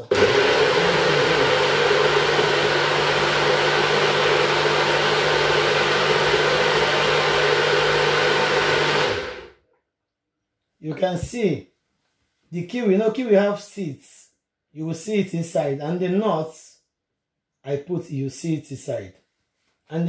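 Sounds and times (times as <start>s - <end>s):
blender motor running: 0.0s - 9.5s.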